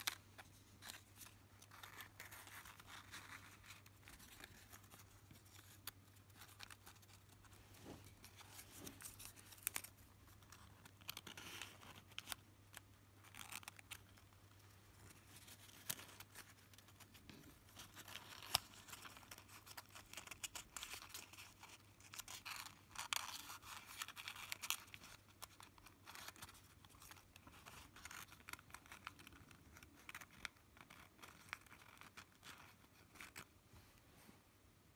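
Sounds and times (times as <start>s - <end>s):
paper rustling and crinkling: 0.0s - 33.5s
small paper clicks: 8.3s - 33.5s.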